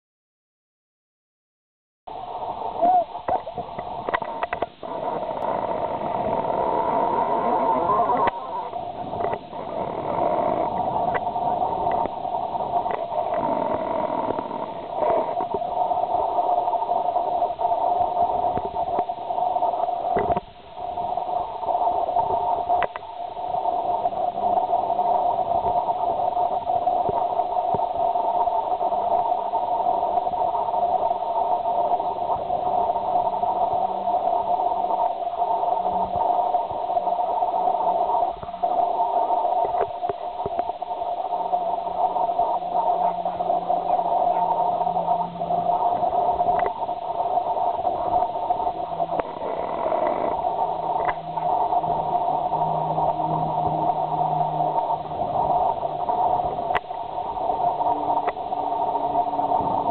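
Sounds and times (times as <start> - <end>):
droning hum with hiss: 2.1 - 59.9
faint clicks: 2.8 - 7.5, 8.1 - 8.5, 9.1 - 12.2, 12.8 - 15.6, 20.2 - 20.5, 22.2 - 23.1, 45.9 - 46.8, 48.9 - 51.5, 56.7 - 57.0, 57.8 - 58.4.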